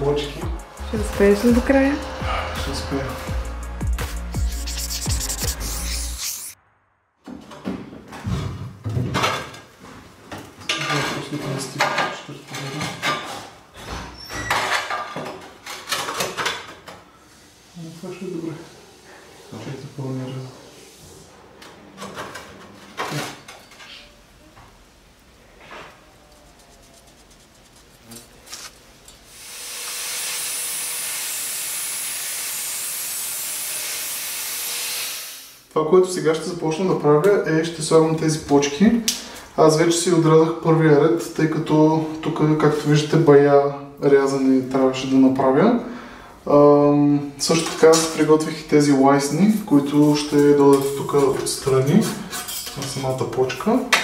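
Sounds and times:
angle grinder cutting metal: 0:29.3 - 0:35.6.

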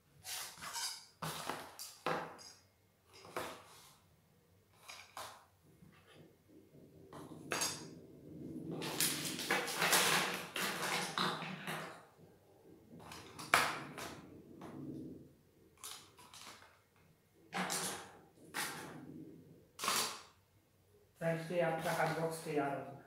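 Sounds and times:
pens and pencils rattling: 0:04.7 - 0:06.2, 0:07.0 - 0:12.1, 0:12.9 - 0:15.1, 0:15.8 - 0:16.9, 0:17.5 - 0:20.3.

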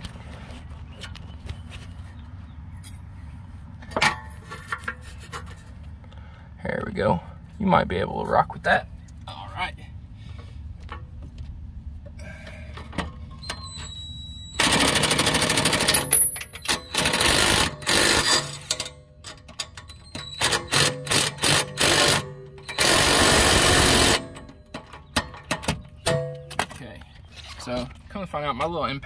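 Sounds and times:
impact wrench hammering: 0:14.6 - 0:18.9, 0:19.5 - 0:26.6.

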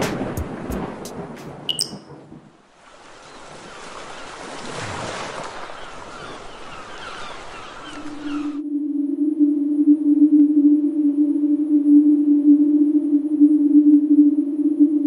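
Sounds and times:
ocean waves washing in: 0:00.0 - 0:08.6
high plink: 0:01.7 - 0:02.1.

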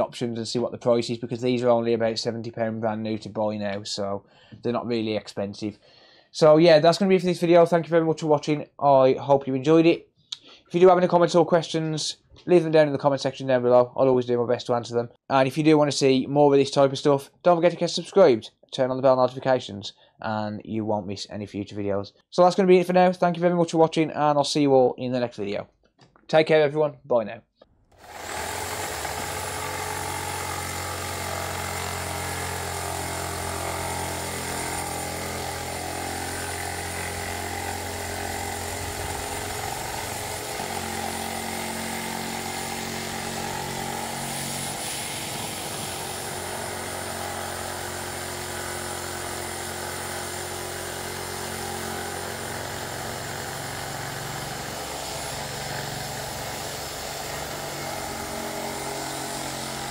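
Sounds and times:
reciprocating saw running: 0:28.0 - 0:59.9.

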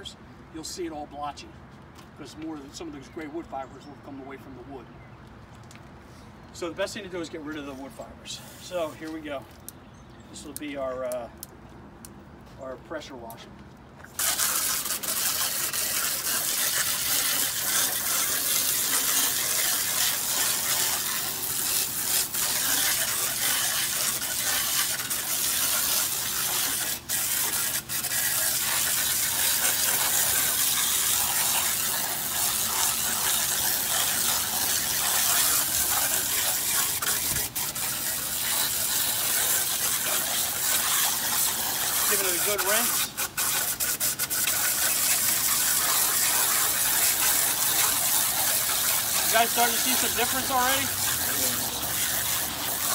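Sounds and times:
pressure washer jet hissing on wood: 0:08.3 - 0:09.2, 0:14.2 - 0:52.9.

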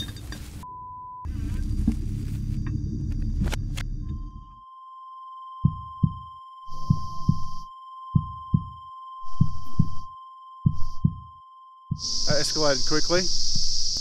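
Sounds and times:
heartbeat thumps: 0:01.3 - 0:04.3, 0:05.6 - 0:11.3, 0:11.9 - 0:12.3
high-pitched ringing tone: 0:02.4 - 0:14.0.

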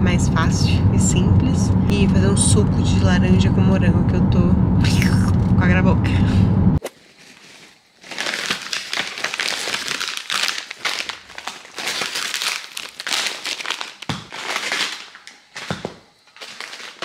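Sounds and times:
plastic packaging crinkling: 0:06.9 - 0:17.0.

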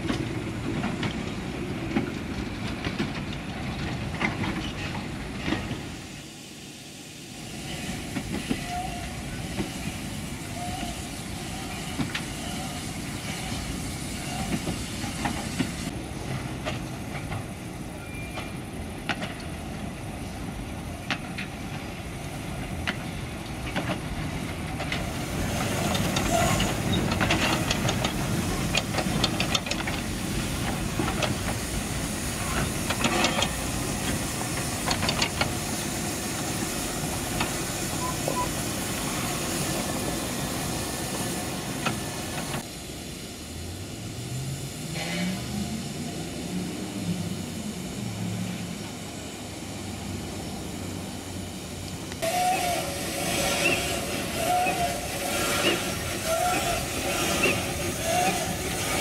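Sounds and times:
train wheels clicking and clanking: 0:00.0 - 0:06.1, 0:07.5 - 0:19.6, 0:20.6 - 0:42.8, 0:51.6 - 0:59.0
steam hissing: 0:04.6 - 0:16.0, 0:19.7 - 0:59.0.

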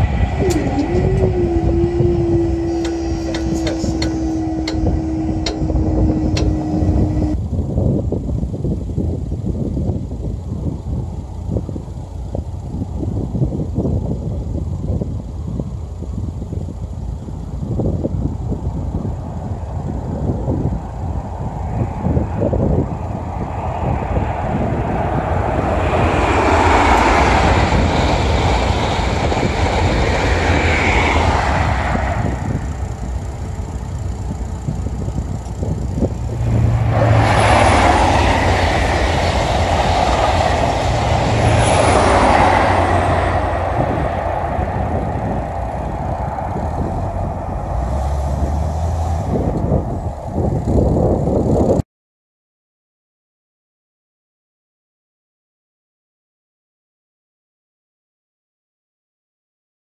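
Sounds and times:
high-speed train passing: 0:00.0 - 0:07.4, 0:21.3 - 0:51.8.

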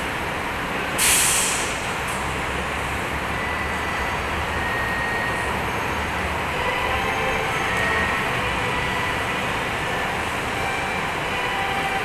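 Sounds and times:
city traffic: 0:00.0 - 0:12.0
sharp hiss of air: 0:01.0 - 0:02.0.

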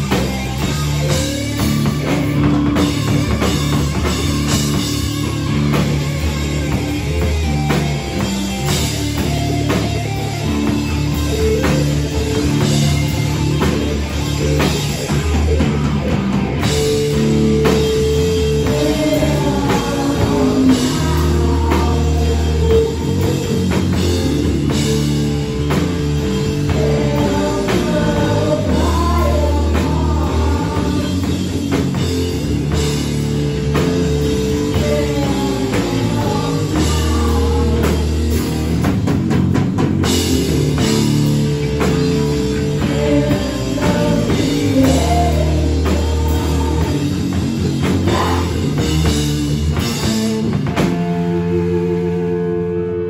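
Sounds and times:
pounding drum kit: 0:00.0 - 0:52.7
bass guitar: 0:00.0 - 0:53.0
distorted electric guitar: 0:00.0 - 0:53.0
vocalist singing: 0:17.6 - 0:24.2, 0:26.3 - 0:31.8, 0:34.4 - 0:38.8, 0:42.5 - 0:49.2.

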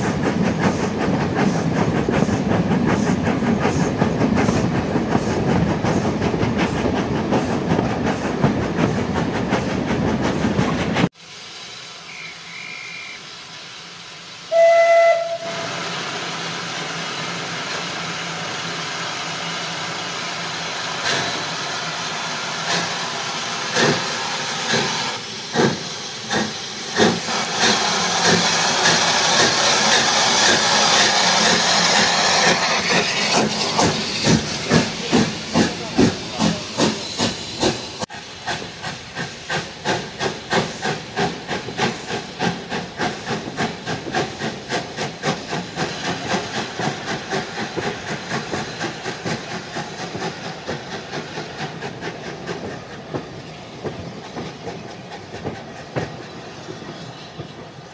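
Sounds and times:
train wheels rumbling on rails: 0:00.0 - 0:11.8, 0:13.2 - 0:57.9
steam hissing: 0:00.0 - 0:57.8
steam locomotive chuffing: 0:00.0 - 0:57.9
steam whistle blast: 0:12.0 - 0:13.3, 0:14.4 - 0:15.9.

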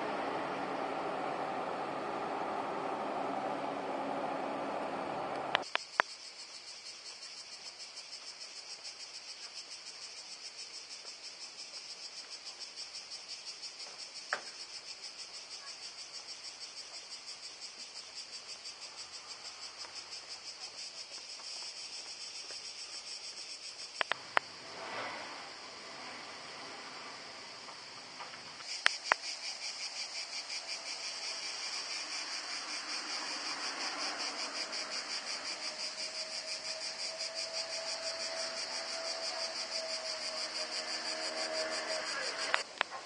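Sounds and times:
cicadas buzzing: 0:00.0 - 0:43.0
sharp clicks: 0:24.0 - 0:24.4.

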